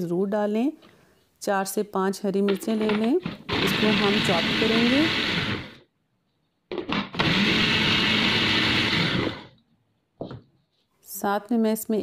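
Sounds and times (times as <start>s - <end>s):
food processor chopping: 2.8s - 5.9s, 6.7s - 9.6s.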